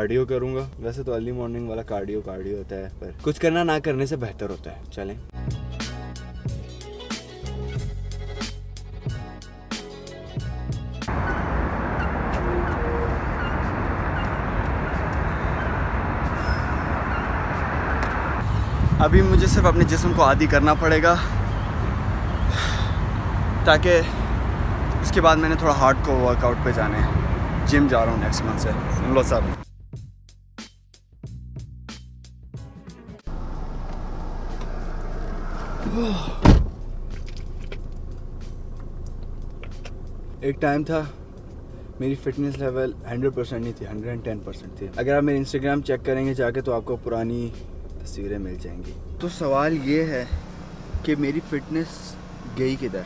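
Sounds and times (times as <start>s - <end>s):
background music with a beat: 5.3s - 11.1s, 29.6s - 33.3s
car interior low hum: 11.1s - 29.6s, 33.3s - 53.0s
loud thump: 36.4s - 36.8s.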